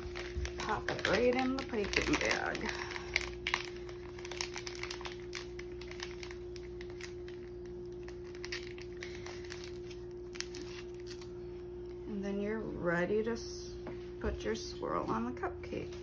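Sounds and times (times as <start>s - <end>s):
plastic wrap crinkling: 0.0s - 12.0s
steady low hum: 0.0s - 16.0s.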